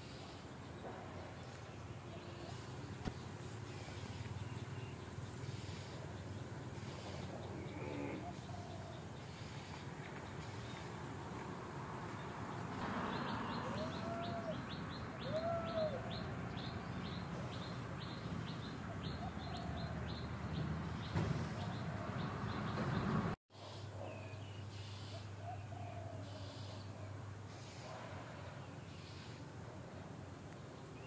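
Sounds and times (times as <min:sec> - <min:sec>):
bird chirping: 0:12.2 - 0:23.2
rising-and-falling bird calls: 0:13.1 - 0:20.3.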